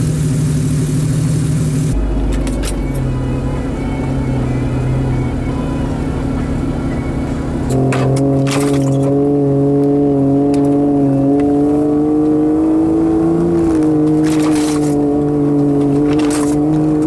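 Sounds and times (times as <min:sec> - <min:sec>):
deep low rumble: 0:00.0 - 0:12.2
vehicle engine humming: 0:00.0 - 0:17.0.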